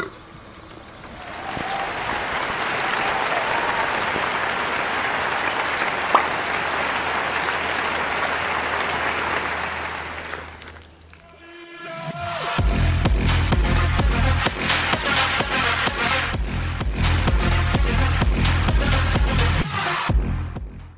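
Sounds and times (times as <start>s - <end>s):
crowd applauding: 1.0s - 11.3s.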